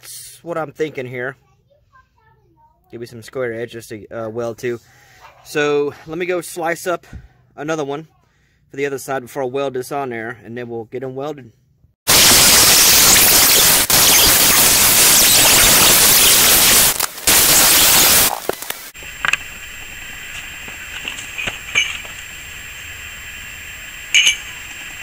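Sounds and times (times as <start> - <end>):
angle grinder cutting steel: 12.1 - 25.0.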